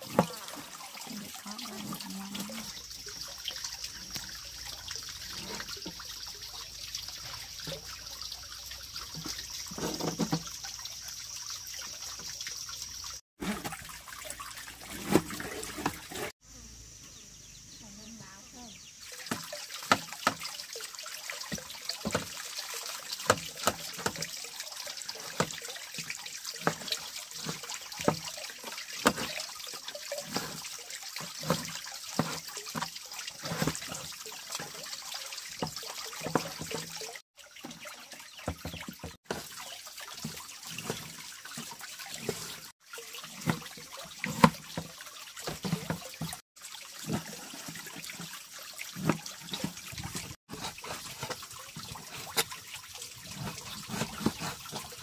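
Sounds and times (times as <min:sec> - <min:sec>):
water splashing and trickling: 0:00.0 - 0:16.5, 0:17.1 - 0:55.0
water sloshing: 0:19.0 - 0:55.0.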